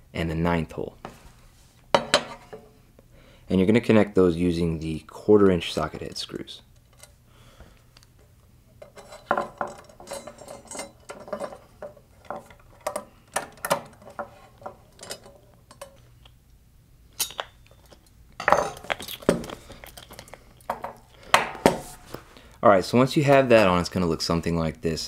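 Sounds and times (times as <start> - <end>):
metal clatter: 8.8 - 16.0
metal parts clinking: 8.8 - 16.0.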